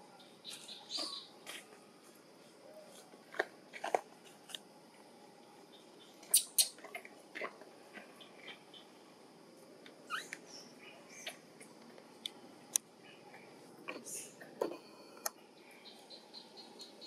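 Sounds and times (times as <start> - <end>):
infant monkey squeaks: 6.3 - 6.8, 10.1 - 10.3.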